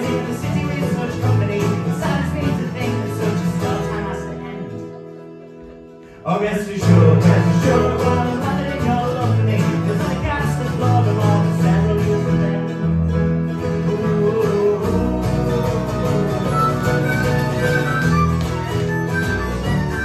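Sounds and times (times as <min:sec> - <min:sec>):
harmonica: 0:00.0 - 0:07.2, 0:15.0 - 0:20.0
fiddle: 0:00.0 - 0:10.6, 0:15.2 - 0:20.0
strummed acoustic guitar: 0:00.0 - 0:20.0.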